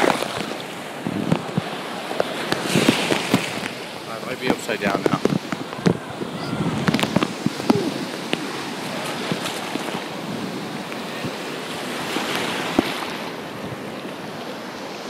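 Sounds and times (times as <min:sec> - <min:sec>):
wind on microphone: 0:00.0 - 0:14.6
surf washing onto beach: 0:00.0 - 0:15.0.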